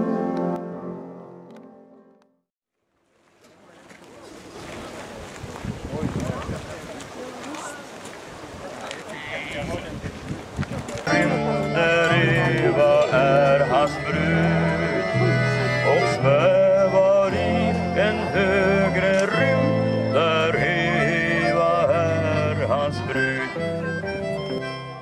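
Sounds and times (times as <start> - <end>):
accordion melody: 0.0 - 2.2, 11.1 - 25.0
electric guitars: 11.0 - 24.6
bass line: 11.1 - 25.0.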